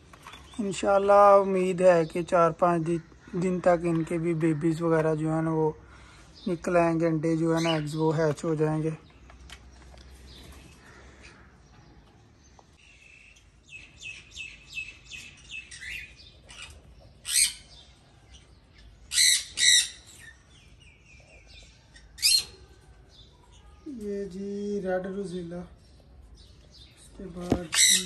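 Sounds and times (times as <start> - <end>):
parrots chirping and calling: 7.4 - 8.1, 12.8 - 23.8, 25.9 - 28.0.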